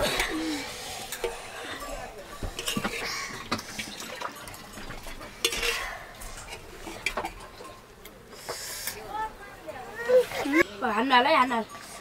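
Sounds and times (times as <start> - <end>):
metal dishes clinking: 0.0 - 7.8.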